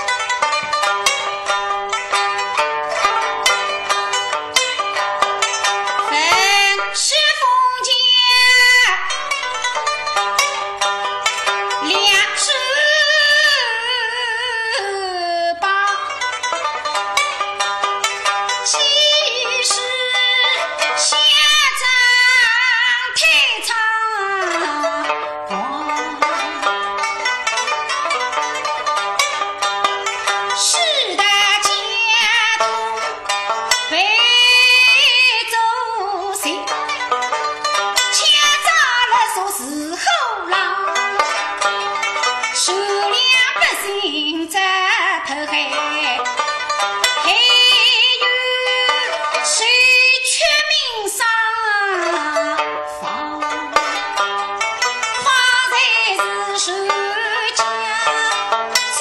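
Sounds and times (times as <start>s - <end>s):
plucked pipa notes: 0.0s - 59.0s
person singing with vibrato: 6.0s - 9.2s, 11.8s - 16.2s, 18.7s - 26.7s, 38.2s - 41.2s, 47.2s - 54.1s
person singing wavering note: 24.2s - 26.7s.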